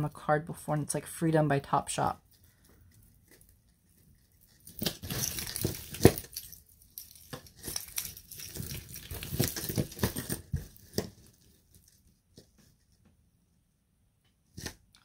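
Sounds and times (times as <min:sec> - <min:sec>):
jewelry chains and beads clinking: 0:04.4 - 0:10.2.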